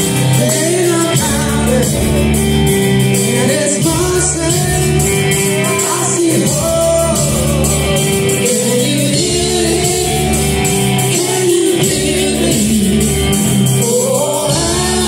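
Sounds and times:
person singing: 0.0s - 15.0s
rock band playing live: 0.0s - 15.0s.

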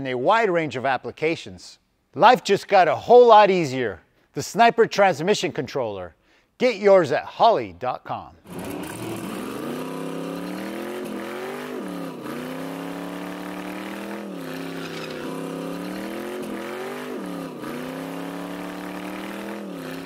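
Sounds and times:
car engine revving: 8.5s - 20.0s
tire squealing: 12.6s - 19.1s.

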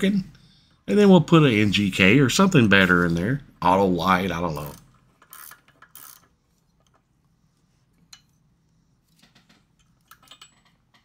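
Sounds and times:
metallic clicks of wrench and parts: 4.6s - 7.0s, 9.7s - 11.0s.

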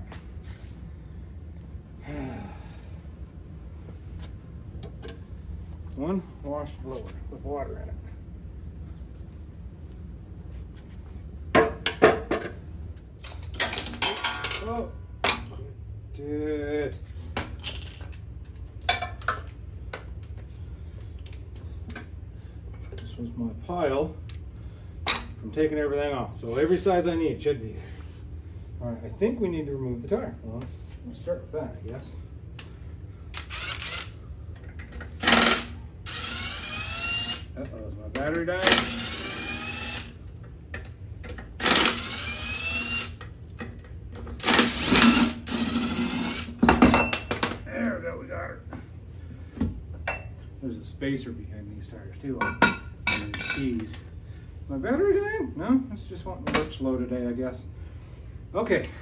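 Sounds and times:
metal tools clinking: 13.2s - 15.5s, 52.5s - 53.7s
impact wrench whine and hammering: 33.3s - 34.2s, 35.0s - 37.5s, 38.2s - 40.2s, 41.2s - 47.6s.

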